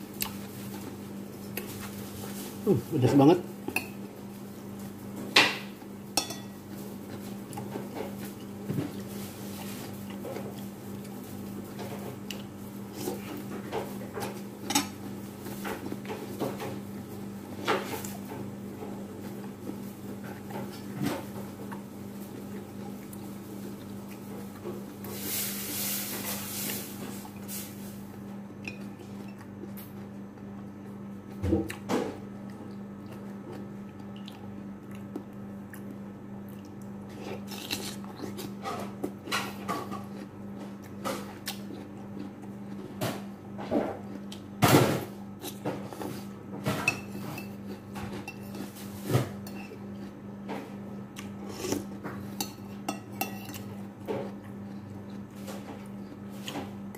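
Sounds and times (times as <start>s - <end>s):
metal spoon clinking on plate: 6.2s - 6.5s.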